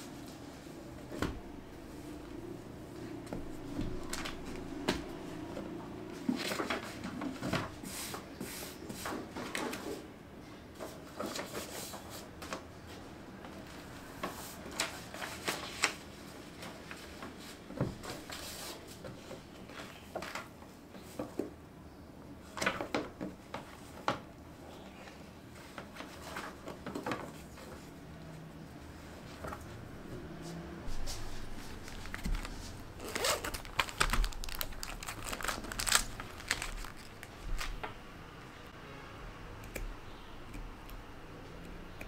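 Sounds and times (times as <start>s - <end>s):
book pages turning: 3.2s - 5.5s, 14.2s - 18.9s, 30.9s - 38.0s
paper rustling: 3.3s - 5.2s, 14.2s - 19.0s, 30.9s - 38.0s.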